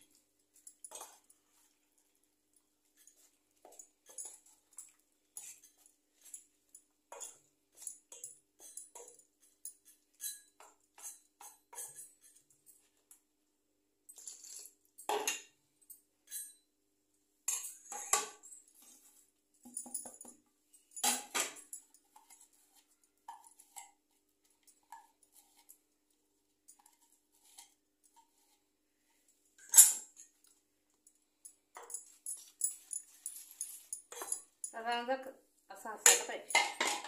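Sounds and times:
scraping and knocking in bowl: 0:17.5 - 0:20.4, 0:21.1 - 0:25.8.

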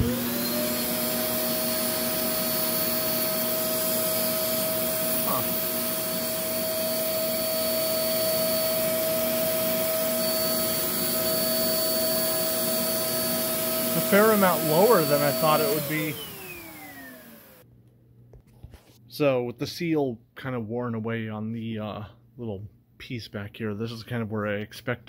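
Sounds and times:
vacuum suction motor running: 0:00.0 - 0:17.6.

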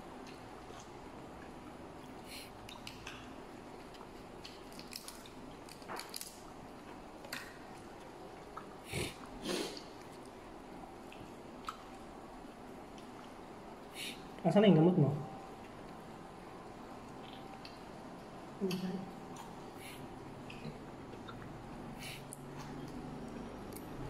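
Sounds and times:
shellfish shells crackling: 0:04.5 - 0:06.5.

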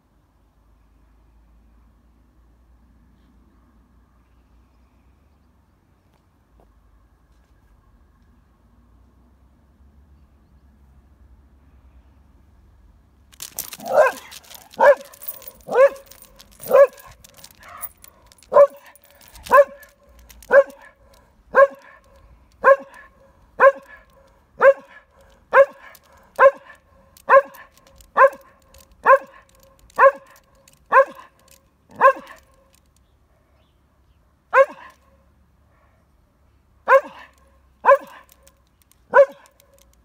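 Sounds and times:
dog barking: 0:13.8 - 0:32.5, 0:34.5 - 0:35.1, 0:36.9 - 0:38.4, 0:39.1 - 0:39.6.

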